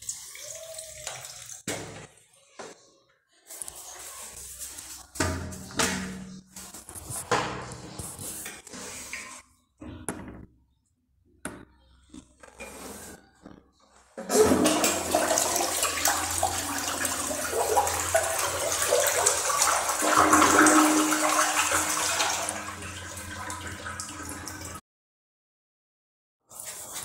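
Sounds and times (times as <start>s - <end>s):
toilet flushing: 14.2s - 24.8s.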